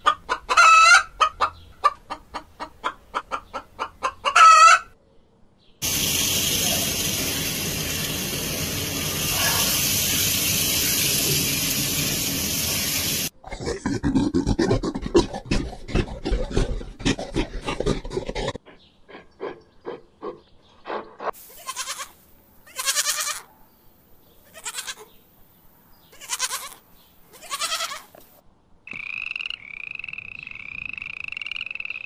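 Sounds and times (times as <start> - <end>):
goat bleating: 21.5 - 23.5, 24.4 - 25.2, 26.1 - 28.1
frog croaking trill: 28.9 - 32.0.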